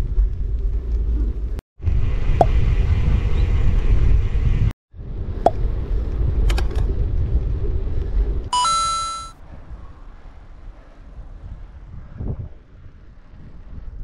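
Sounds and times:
wind buffeting microphone: 0.0s - 8.5s, 9.4s - 14.0s
short electronic beep: 8.6s - 9.4s.

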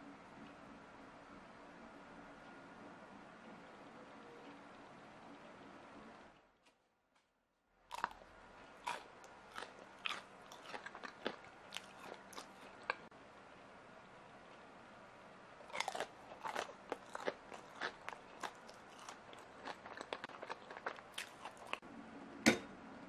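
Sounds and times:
crunchy candy chewing: 7.9s - 13.1s, 15.7s - 21.8s.

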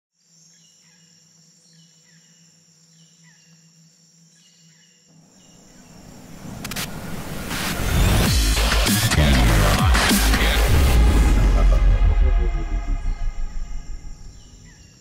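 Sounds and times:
swell of noise: 5.6s - 15.0s
bird chirping: 12.5s - 15.0s.

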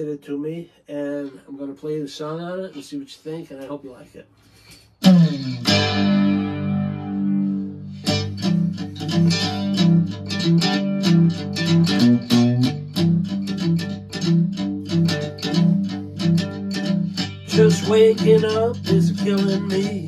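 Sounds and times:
cigar box guitar strummed chord: 5.0s - 20.0s
picked guitar notes: 5.0s - 20.0s.

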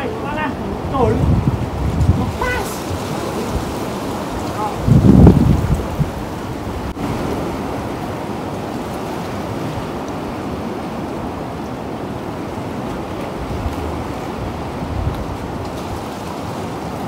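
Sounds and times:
surf washing around rocks: 0.0s - 17.0s.

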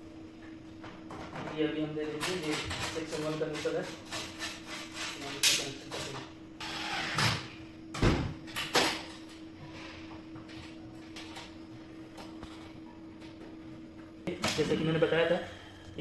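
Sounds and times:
steady low hum: 0.0s - 16.0s
scrape on metal enclosure: 3.6s - 5.4s.

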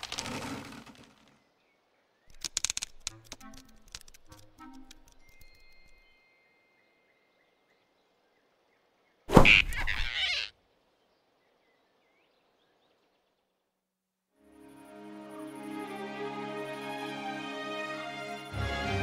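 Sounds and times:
cartoon whoosh and grab: 9.3s - 10.2s.

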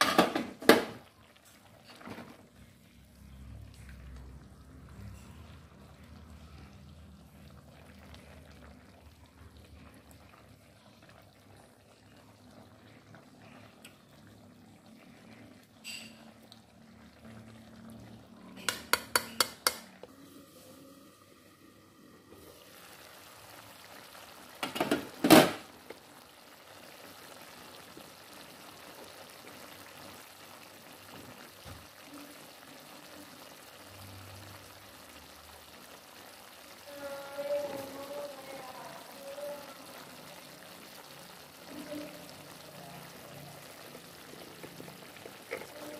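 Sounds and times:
metal cookware clinking: 15.8s - 16.3s, 18.6s - 19.9s.

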